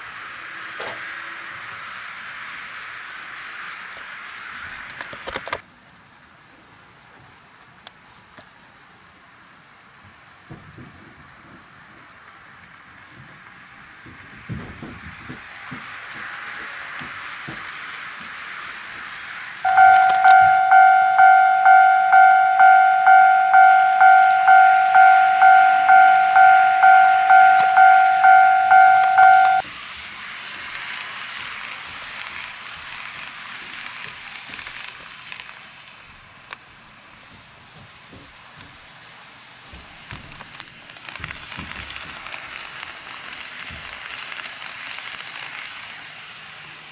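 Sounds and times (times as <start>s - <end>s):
model trains running on track: 0.0s - 46.9s
level crossing warning bell: 19.6s - 29.6s.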